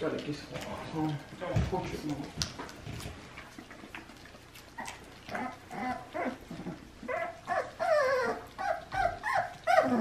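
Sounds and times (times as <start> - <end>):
puppies chewing: 0.0 - 10.0
puppies whining: 3.8 - 10.0.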